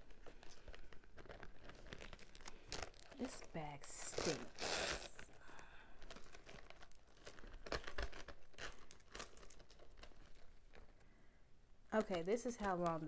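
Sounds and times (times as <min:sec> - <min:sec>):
paper crinkling: 0:00.0 - 0:11.2, 0:11.9 - 0:13.0
metal chain links rattling: 0:07.7 - 0:10.5.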